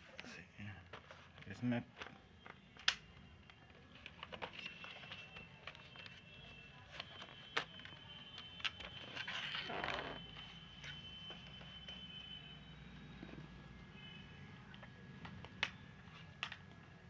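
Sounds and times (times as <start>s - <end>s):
faint steady high tone: 4.6s - 16.2s.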